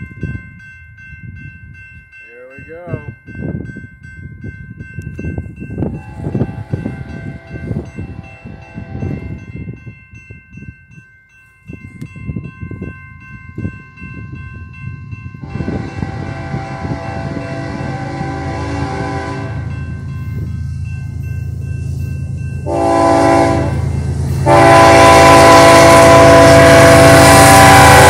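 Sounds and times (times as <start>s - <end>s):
wind rumble on microphone: 0.0s - 2.2s, 2.8s - 28.0s
locomotive air horn blasts: 6.0s - 9.4s, 15.4s - 19.7s, 22.6s - 28.0s.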